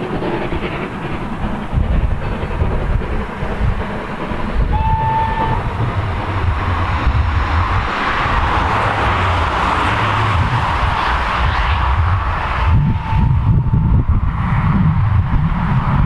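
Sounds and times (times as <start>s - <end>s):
steam locomotive exhaust rumble: 0.0s - 16.0s
short train whistle: 4.7s - 5.7s, 12.6s - 14.0s.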